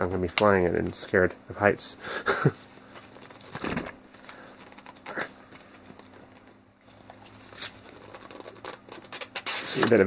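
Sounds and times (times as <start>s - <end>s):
cardboard and paper rustling: 2.9s - 10.0s.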